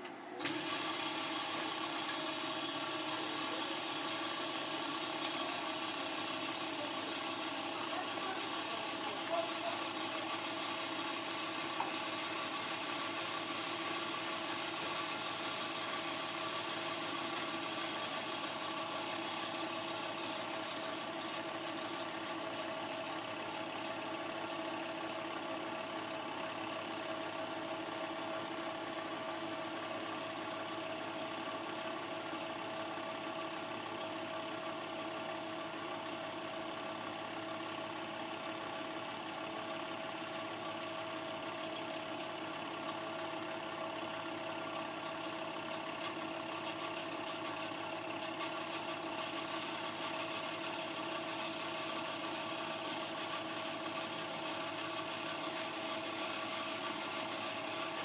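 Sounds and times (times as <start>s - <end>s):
film projector whirring: 0.0s - 58.0s.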